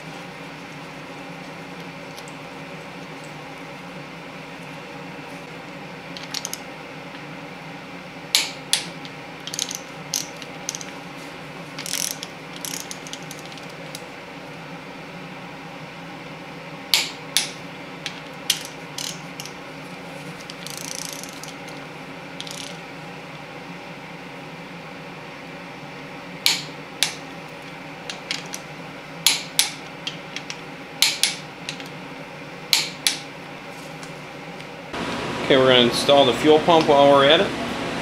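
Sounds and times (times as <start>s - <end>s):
steady hum: 0.0s - 38.0s
torque wrench clicking: 9.5s - 10.9s, 11.8s - 13.6s, 18.5s - 19.6s, 20.6s - 21.8s, 22.4s - 22.8s.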